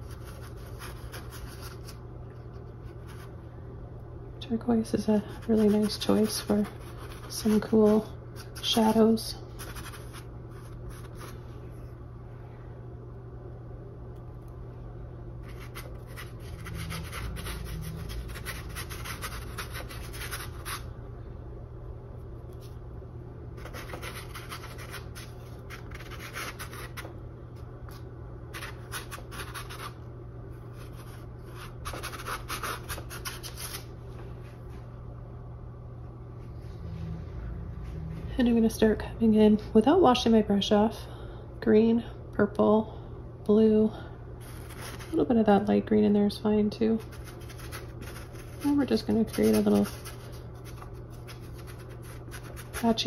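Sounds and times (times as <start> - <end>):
steady low hum: 0.0 - 53.0
paintbrush scrubbing canvas: 47.0 - 53.0.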